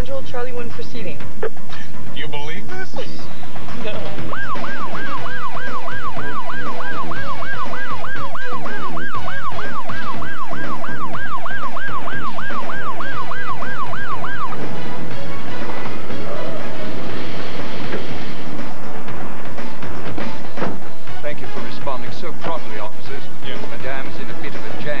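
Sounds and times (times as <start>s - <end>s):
police siren yelping: 4.1s - 17.3s.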